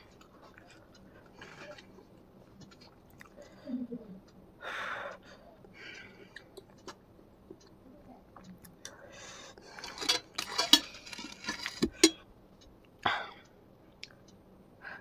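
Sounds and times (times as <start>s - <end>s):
fork clinking on ceramic plate: 9.8s - 12.2s.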